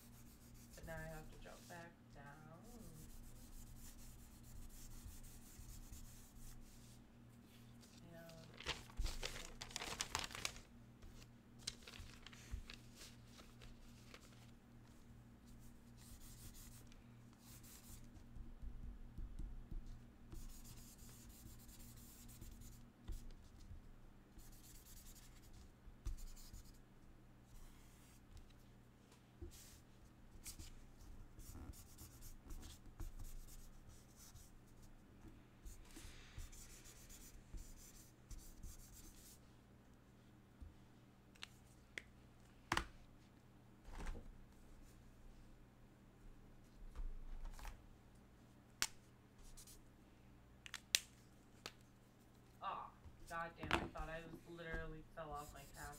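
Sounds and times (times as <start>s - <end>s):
low steady hum: 0.0s - 55.9s
marker scratching on paper: 2.6s - 7.0s, 17.4s - 18.2s, 20.3s - 23.6s, 24.4s - 26.8s, 31.4s - 34.9s, 54.7s - 55.9s.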